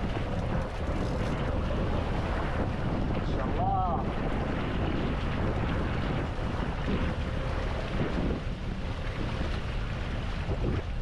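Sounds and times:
sea water rushing: 0.0 - 11.0
wind buffeting microphone: 0.0 - 11.0.

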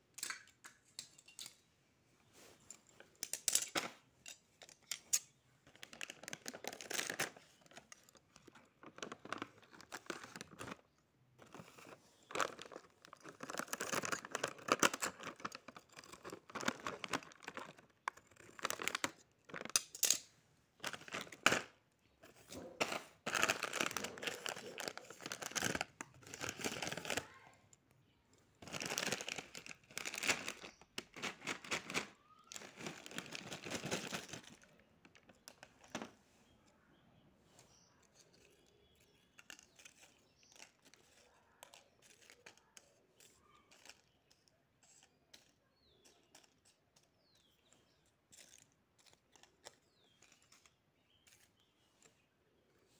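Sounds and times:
plastic packets crinkling: 5.6 - 20.0, 20.8 - 27.4, 28.6 - 36.1.

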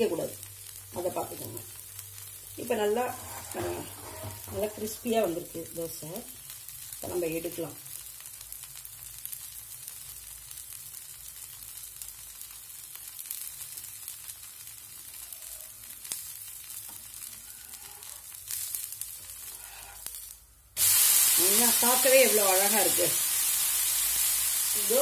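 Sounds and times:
dosa sizzling in oil: 0.0 - 25.0
steel spatula scraping griddle: 2.8 - 5.1, 17.2 - 20.3.

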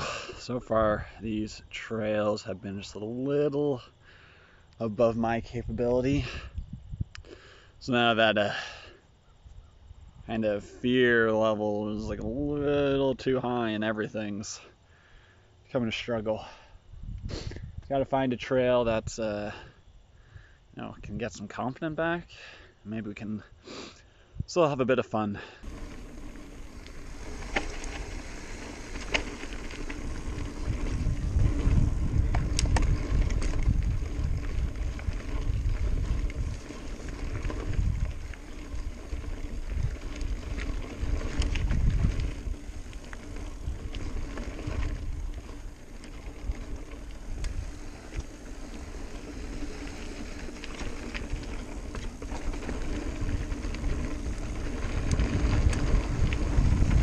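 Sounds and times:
bike tyres on dirt: 0.0 - 57.0
wind rumble on microphone: 5.3 - 7.2, 16.8 - 18.0, 25.6 - 57.0
bike clicking and rattling: 25.6 - 57.0.

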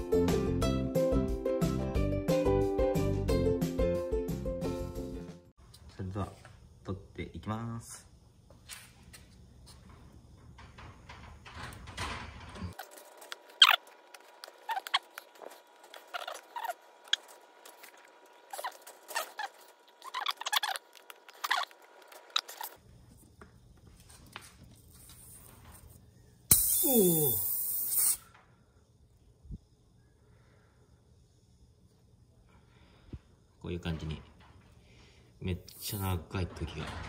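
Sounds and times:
pliers squeaking and clicking: 18.5 - 22.8
air hissing from tyre: 26.5 - 28.3.

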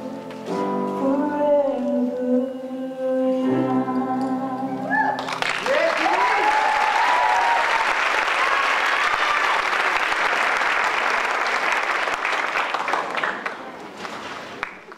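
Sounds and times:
people cheering: 4.9 - 13.5
audience applauding: 5.2 - 14.9.

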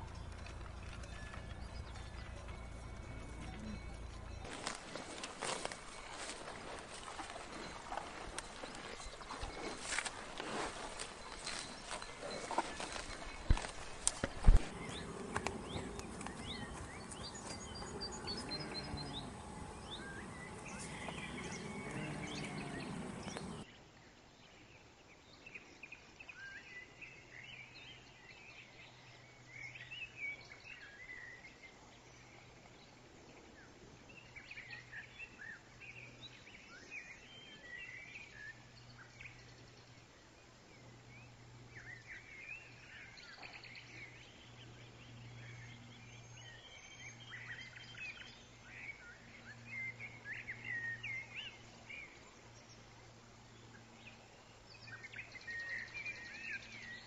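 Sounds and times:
birds chirping and warbling: 0.0 - 23.7
low steady hum: 0.0 - 23.7
cow mooing: 17.4 - 23.6.

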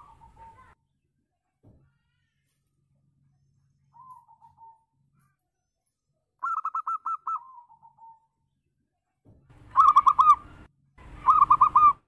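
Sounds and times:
dove cooing: 9.7 - 10.5, 11.2 - 12.0.

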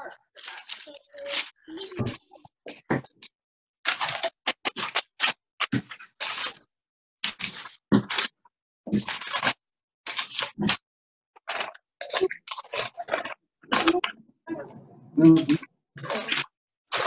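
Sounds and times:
paper and plastic rustling: 0.0 - 2.5, 3.9 - 6.6, 7.2 - 10.8, 11.4 - 14.1.

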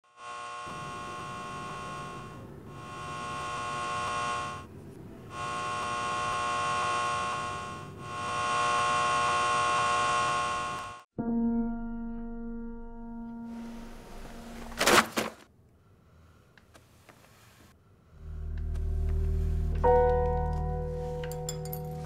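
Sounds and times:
electrical buzzing hum: 0.1 - 11.1, 13.0 - 14.8.

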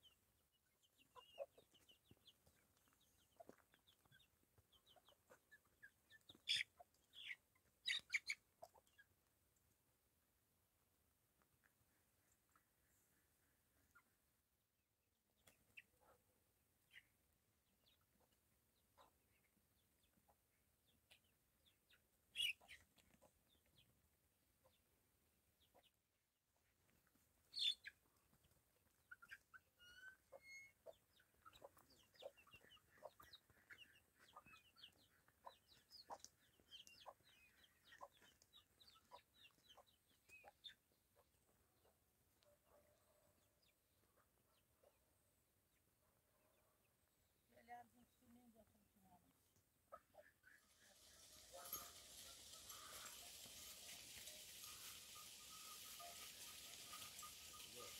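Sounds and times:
chickens clucking: 0.0 - 9.1, 21.1 - 23.9, 27.6 - 42.0, 49.9 - 57.9.

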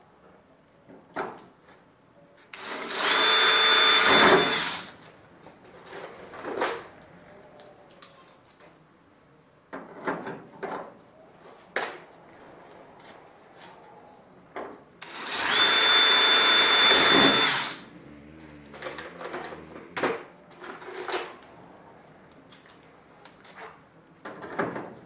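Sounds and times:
cordless drill drilling metal: 2.6 - 4.9, 15.0 - 17.8.

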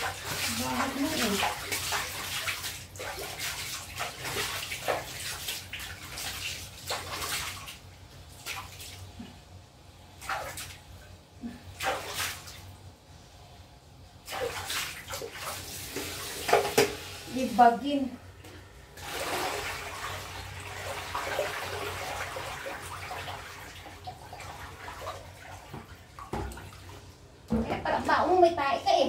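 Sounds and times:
water splashing in plastic basin: 0.0 - 9.1, 10.2 - 10.8, 11.7 - 12.6, 14.2 - 17.0, 19.0 - 27.9.

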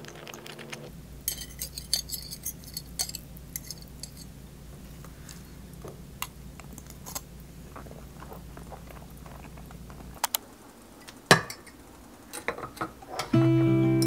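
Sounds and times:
glass jar clinking against pot: 1.3 - 4.3.

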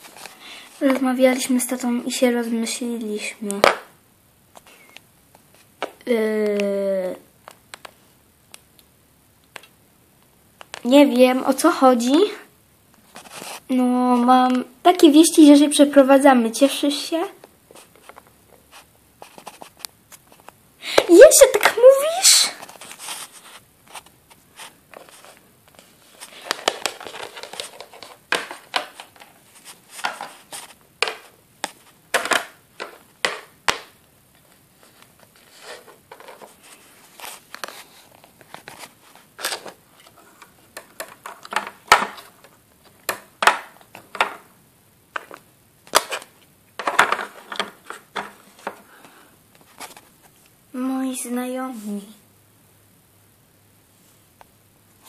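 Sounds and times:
plastic toys clicking on wooden floor: 32.1 - 33.9.

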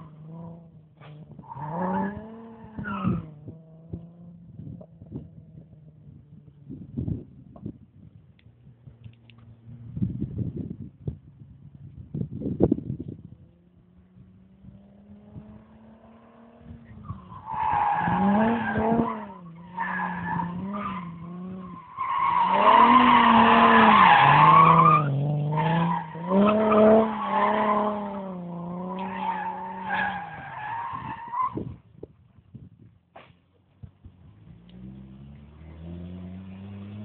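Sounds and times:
car engine revving: 13.4 - 30.9, 34.2 - 37.0.

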